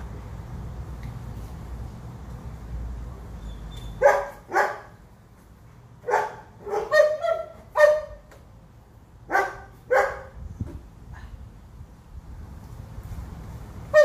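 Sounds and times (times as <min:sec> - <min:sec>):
dog barking: 0:04.0 - 0:04.9, 0:06.0 - 0:08.2, 0:09.3 - 0:10.3.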